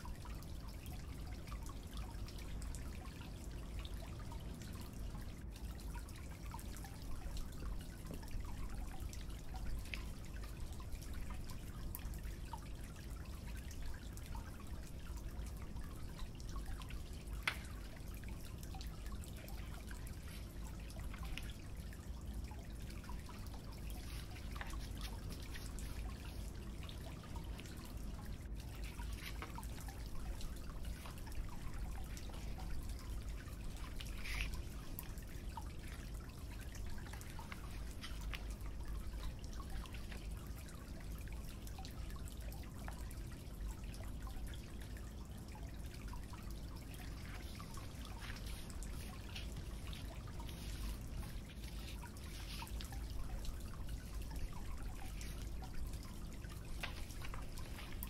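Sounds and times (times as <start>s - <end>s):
low room hum: 0.0s - 58.0s.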